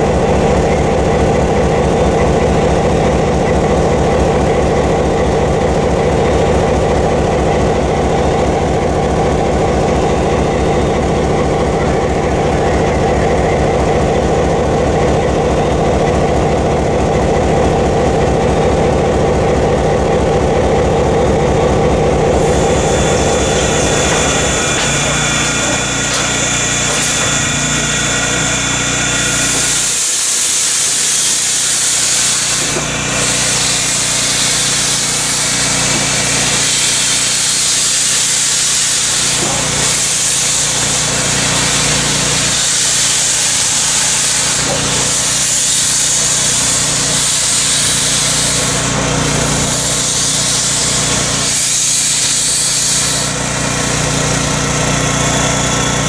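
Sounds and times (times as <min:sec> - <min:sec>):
low mechanical hum: 0:04.2 - 0:53.4
steam hissing: 0:22.3 - 0:53.7.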